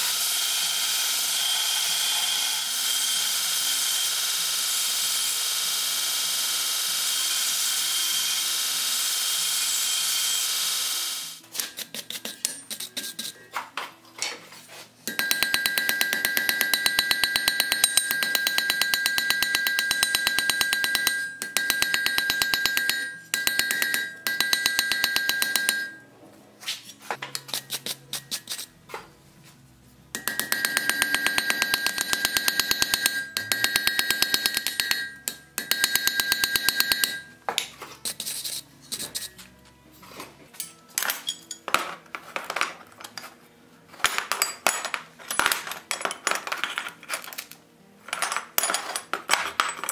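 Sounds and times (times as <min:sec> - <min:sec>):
anvil ringing: 0:15.1 - 0:26.0, 0:30.2 - 0:37.4
metal pieces clinking: 0:44.0 - 0:49.9.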